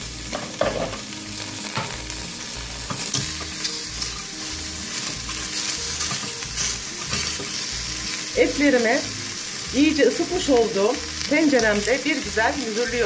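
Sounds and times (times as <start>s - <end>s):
meat sizzling in a pot: 0.0s - 13.0s.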